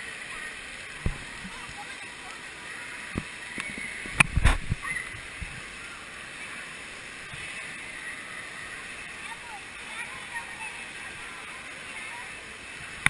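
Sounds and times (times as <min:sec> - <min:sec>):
water splashing in pool: 0:00.0 - 0:13.0.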